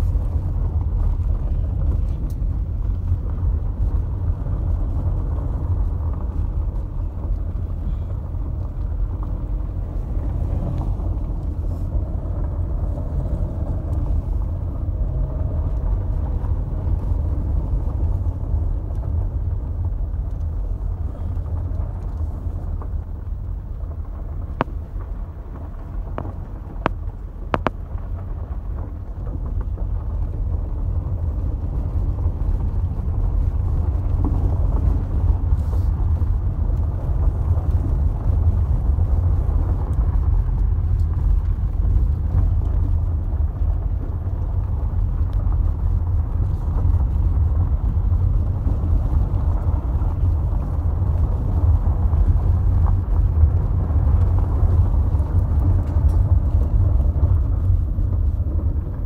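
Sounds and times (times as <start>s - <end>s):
car engine and tyres rumbling: 0.0s - 59.0s.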